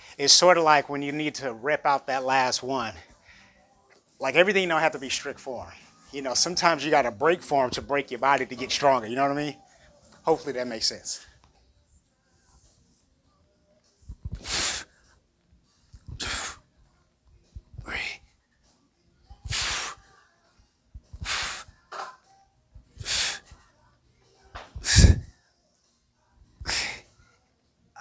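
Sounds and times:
sharp forceful breaths: 0:14.3 - 0:15.1, 0:16.1 - 0:16.7, 0:19.4 - 0:20.2, 0:21.1 - 0:21.8, 0:23.0 - 0:23.6, 0:24.7 - 0:25.4, 0:26.6 - 0:27.1.

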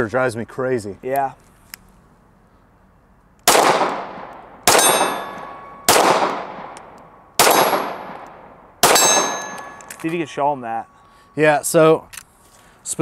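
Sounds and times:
pistol shots with echo: 0:03.4 - 0:09.9
thin metallic ring: 0:04.8 - 0:05.9, 0:09.0 - 0:11.6.

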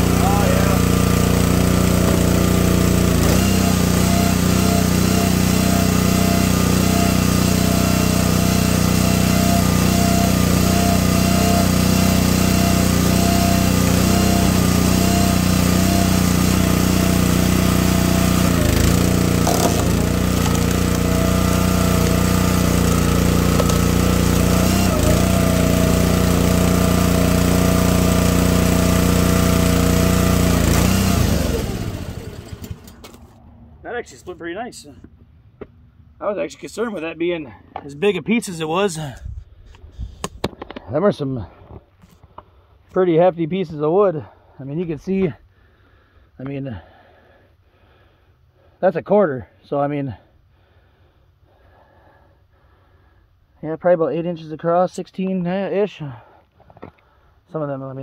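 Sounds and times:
log splitter engine running: 0:00.0 - 0:33.6.

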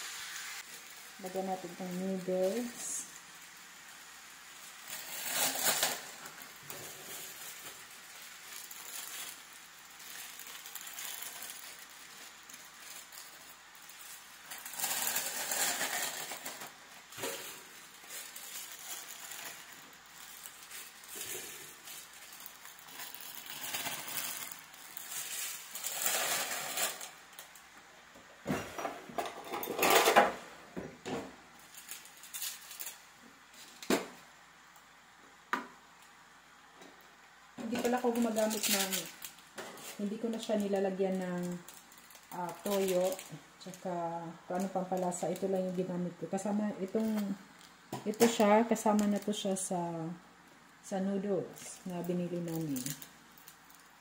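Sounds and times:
plastic packages crinkling: 0:00.6 - 0:27.8, 0:31.6 - 0:35.0, 0:37.6 - 0:54.0.

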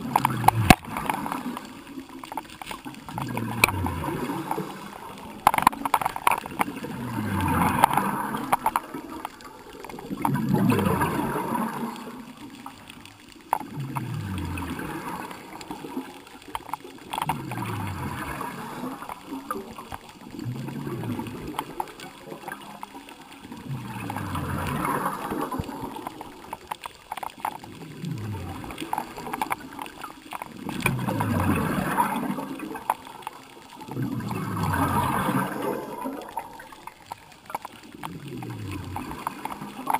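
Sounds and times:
underwater exhaled bubbles: 0:00.0 - 0:39.9.

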